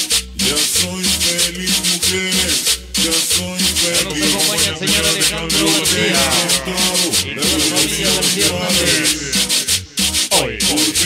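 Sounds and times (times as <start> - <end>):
pulsing bass beat: 0.0 - 11.0
scratchy scraping percussion: 0.0 - 11.0.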